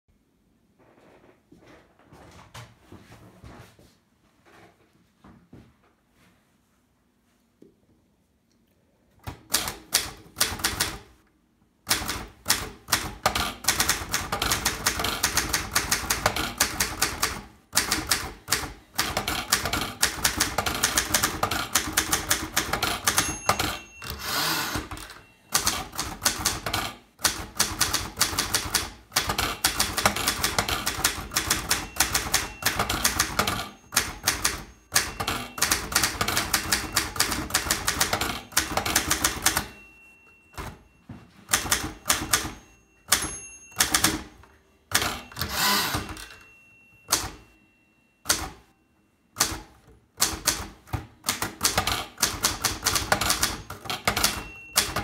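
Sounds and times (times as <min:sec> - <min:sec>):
manual typewriter keys clacking: 0:09.3 - 0:11.2, 0:11.9 - 0:40.8, 0:41.5 - 0:46.5, 0:47.1 - 0:47.4, 0:48.2 - 0:48.6, 0:49.4 - 0:55.0.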